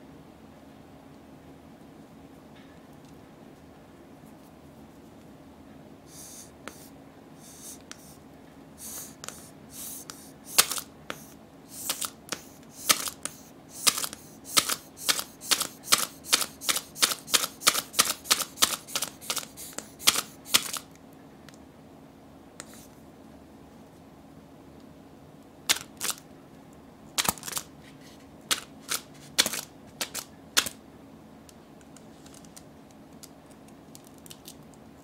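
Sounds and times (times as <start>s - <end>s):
squeeze toy air puffs: 6.1s - 8.2s, 8.8s - 20.9s.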